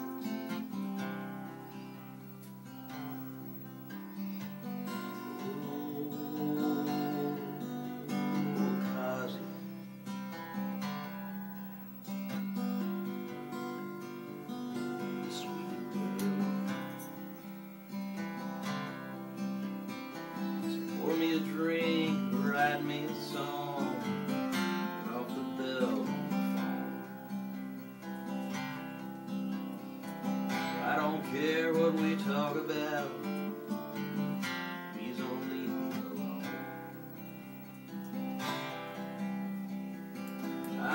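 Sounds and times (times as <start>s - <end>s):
acoustic guitar strummed and picked: 0.0s - 40.9s
man singing: 4.8s - 9.8s, 14.2s - 17.3s, 20.4s - 27.1s, 30.5s - 37.0s, 40.5s - 40.9s.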